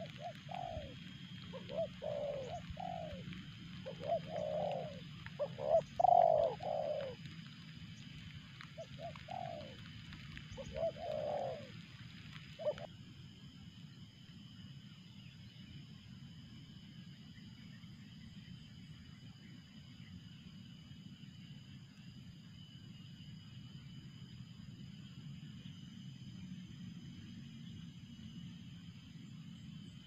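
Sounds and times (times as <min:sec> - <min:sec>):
dove cooing: 0:00.0 - 0:07.3, 0:08.6 - 0:12.9.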